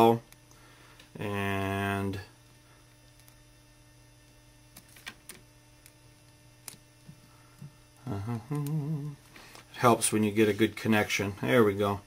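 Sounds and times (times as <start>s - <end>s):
steady electrical hum: 0.0s - 12.0s
man humming: 7.6s - 9.3s.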